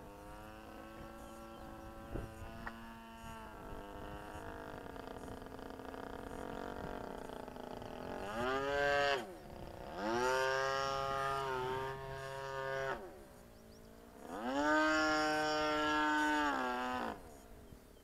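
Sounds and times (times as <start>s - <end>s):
model plane engine flying overhead: 0.0s - 18.0s.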